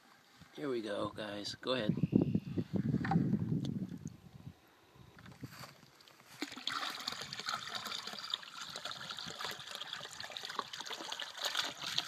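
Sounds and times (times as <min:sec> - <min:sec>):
water pouring from a bucket: 0:05.3 - 0:12.0.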